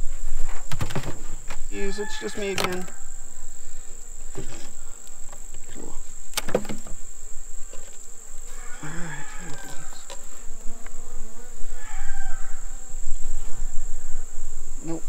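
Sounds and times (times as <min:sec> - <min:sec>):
honeybees buzzing: 0:00.0 - 0:15.0
wooden hive frames knocking: 0:00.6 - 0:03.4, 0:04.0 - 0:11.6
high-pitched insect drone: 0:01.5 - 0:15.0.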